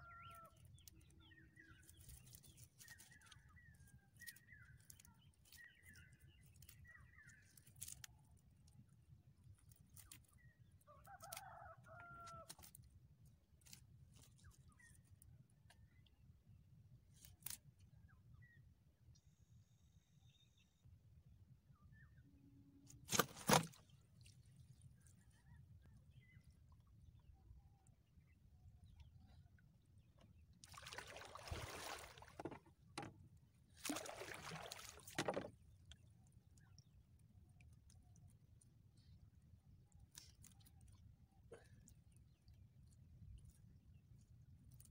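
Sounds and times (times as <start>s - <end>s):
water splashing against canoe: 23.0s - 24.0s, 30.6s - 35.7s.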